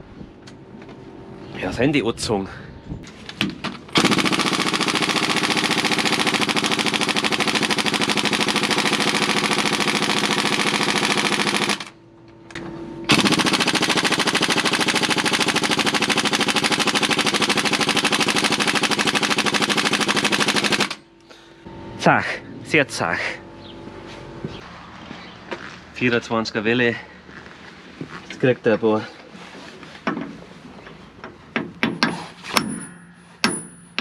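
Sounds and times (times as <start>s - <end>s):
air impact wrench hammering: 3.9s - 12.0s, 13.1s - 21.1s, 31.6s - 34.0s.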